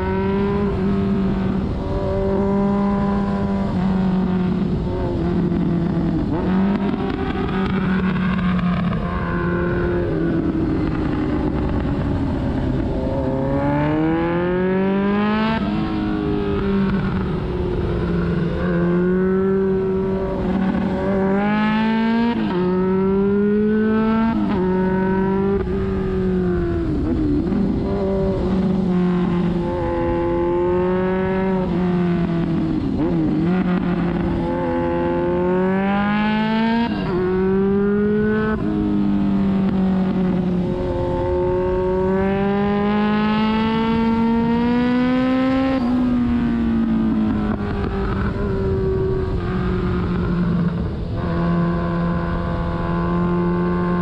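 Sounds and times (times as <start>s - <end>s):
motorcycle engine accelerating: 0.0s - 54.0s.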